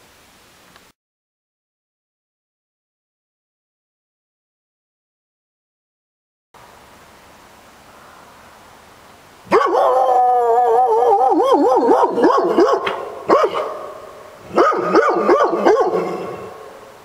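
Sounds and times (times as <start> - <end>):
faint outdoor hiss: 0.0 - 1.0, 6.6 - 17.0
dog howling: 9.5 - 16.8.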